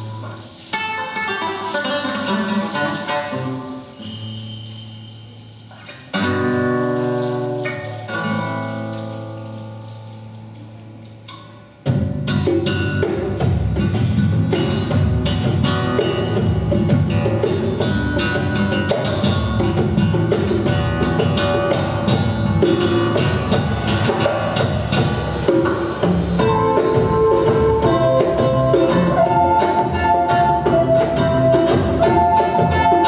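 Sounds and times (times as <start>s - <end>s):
live band playing upbeat instrumental: 0.0s - 33.0s
busy drumming: 11.2s - 33.0s.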